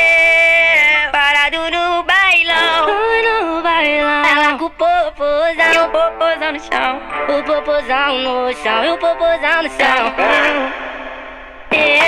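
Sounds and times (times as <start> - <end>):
sped-up funk song: 1.6 - 12.0
high sped-up vocal melody: 5.6 - 11.0.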